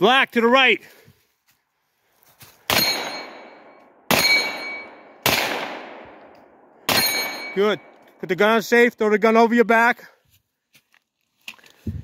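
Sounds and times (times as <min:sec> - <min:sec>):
gunshots ringing out: 0:02.7 - 0:08.0.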